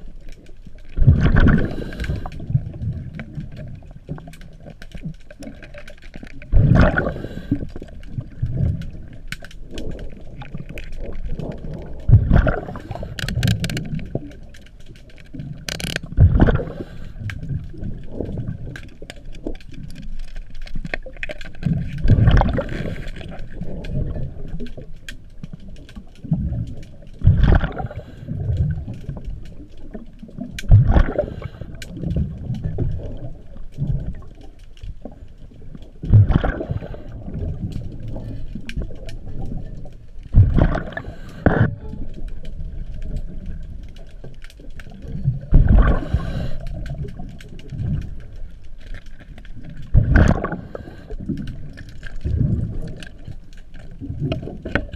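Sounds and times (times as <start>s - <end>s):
small clicks: 0.0s - 36.0s, 46.0s - 54.9s
diver exhaling bubbles underwater: 1.0s - 3.8s, 6.5s - 9.2s, 11.3s - 13.9s, 16.0s - 18.8s, 21.6s - 24.5s, 27.2s - 28.9s, 30.3s - 34.3s, 36.0s - 39.6s, 40.3s - 41.9s, 45.1s - 48.0s, 49.9s - 53.0s.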